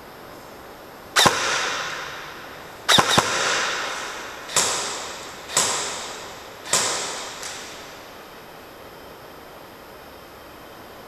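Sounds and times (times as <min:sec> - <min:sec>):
airsoft gun shots echoing: 0:01.2 - 0:08.3.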